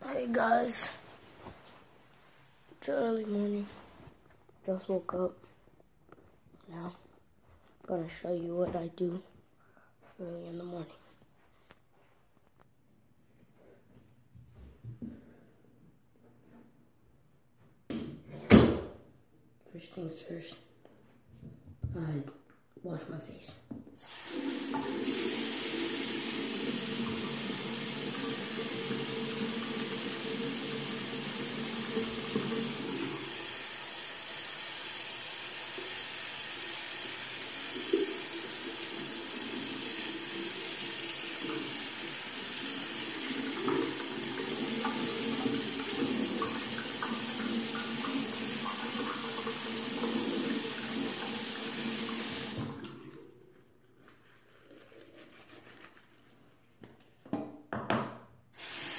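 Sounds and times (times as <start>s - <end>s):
faucet water running into basin: 24.0s - 53.3s, 58.6s - 58.9s.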